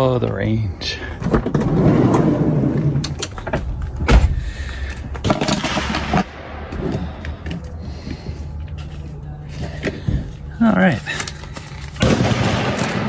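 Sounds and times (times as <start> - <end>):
heavy thump: 4.0 - 4.4.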